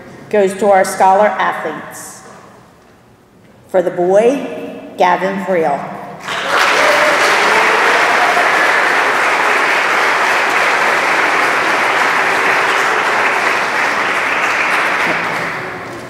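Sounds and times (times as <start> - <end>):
audience applauding: 6.2 - 16.0.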